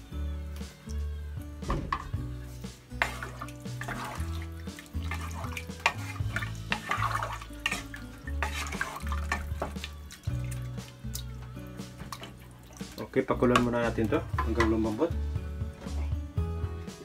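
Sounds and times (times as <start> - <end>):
background music with bass line: 0.0 - 17.0
liquid sloshing in pot: 1.9 - 15.0.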